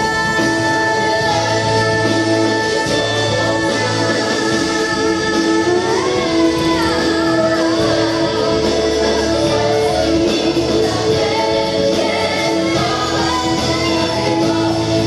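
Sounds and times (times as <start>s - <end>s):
band with guitar: 0.0s - 15.0s
gospel choir singing: 0.0s - 15.0s
woman singing lead: 0.0s - 15.0s.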